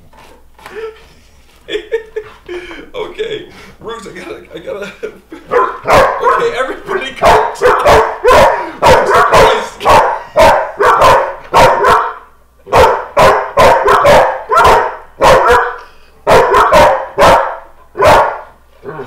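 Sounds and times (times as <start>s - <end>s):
dogs barking: 5.4s - 19.0s.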